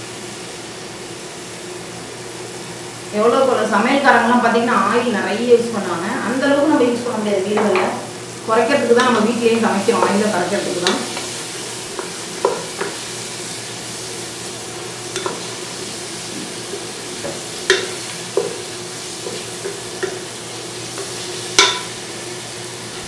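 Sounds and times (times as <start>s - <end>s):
onions sizzling in oil: 0.0s - 23.0s
wooden spoon knocking pan: 9.9s - 11.3s, 12.0s - 13.0s, 17.2s - 18.6s, 21.6s - 21.9s.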